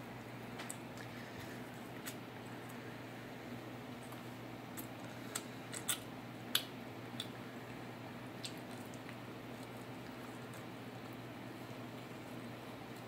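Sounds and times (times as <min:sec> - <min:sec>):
steady low hum: 0:00.0 - 0:13.0
person chewing: 0:04.0 - 0:07.4, 0:08.4 - 0:13.0
mouth clicks and smacks: 0:04.1 - 0:07.4, 0:08.4 - 0:10.7.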